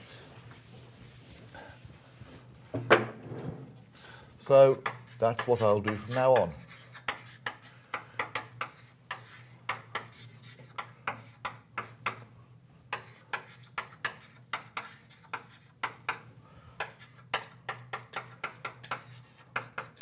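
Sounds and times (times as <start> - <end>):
chalk taps and scratches on board: 4.5 - 20.0.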